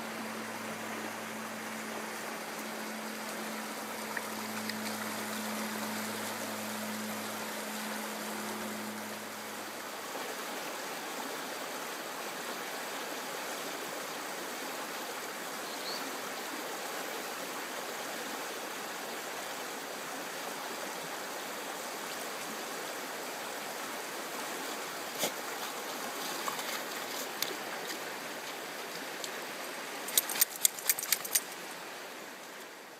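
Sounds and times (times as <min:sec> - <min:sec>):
stream running over stones: 0:00.0 - 0:32.9
dog shaking off water: 0:30.0 - 0:31.6.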